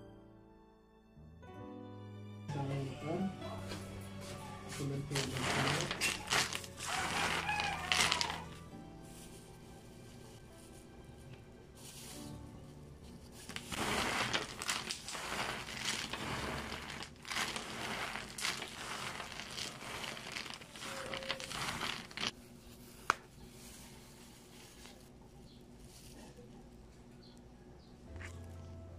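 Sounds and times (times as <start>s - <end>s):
plastic gloves crinkling: 3.7s - 27.4s
cookies rattling and scraping: 4.7s - 8.7s, 13.1s - 22.4s
cookie snapping: 5.2s - 8.6s.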